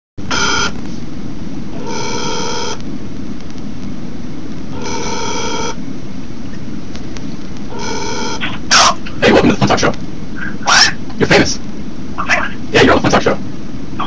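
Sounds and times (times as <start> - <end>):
electronic phone ringing: 0.3 - 0.8, 1.7 - 2.8, 4.7 - 5.8, 7.7 - 8.6.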